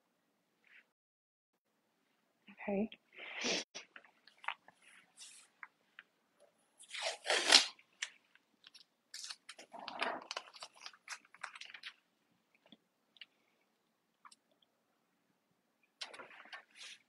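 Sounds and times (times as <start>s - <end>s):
tape crackling and rustling: 6.8s - 13.4s
masking tape ripping: 6.9s - 8.1s.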